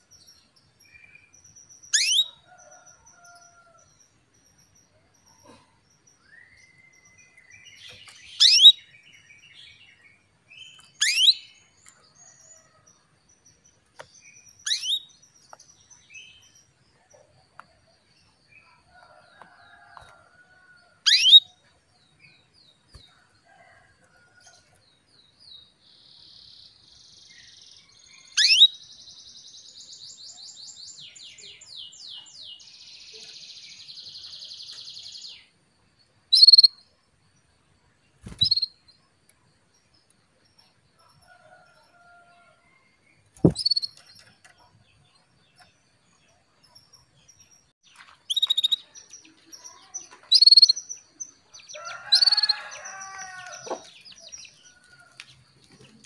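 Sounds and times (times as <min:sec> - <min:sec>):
canary trilling: 0:01.9 - 0:02.4, 0:08.3 - 0:08.8, 0:10.8 - 0:11.5, 0:14.6 - 0:15.1, 0:21.0 - 0:21.5, 0:28.4 - 0:28.7, 0:36.4 - 0:36.7, 0:38.2 - 0:38.7, 0:43.4 - 0:44.0, 0:50.3 - 0:50.9
canary calling: 0:02.0 - 0:02.4, 0:36.4 - 0:36.7.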